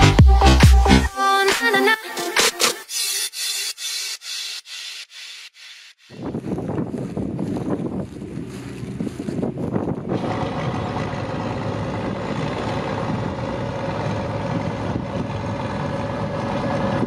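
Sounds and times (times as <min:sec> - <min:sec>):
wind noise on microphone: 0:06.1 - 0:17.0
tractor diesel engine running: 0:06.2 - 0:17.0.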